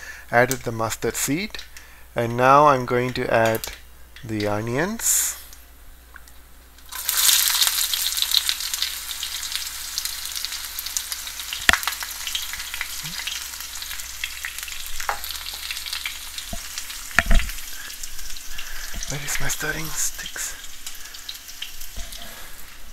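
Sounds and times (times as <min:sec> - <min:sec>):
onion sizzling in hot oil: 0:06.9 - 0:22.9
sharp pops and crackles: 0:11.5 - 0:22.8.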